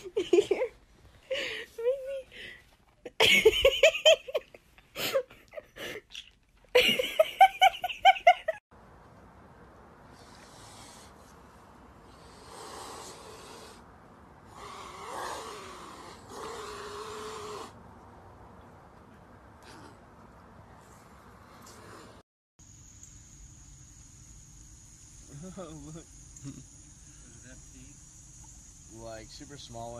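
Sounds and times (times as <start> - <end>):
loud laughing voice: 6.8 - 8.6
swans hissing: 10.1 - 11.4, 12.0 - 17.8.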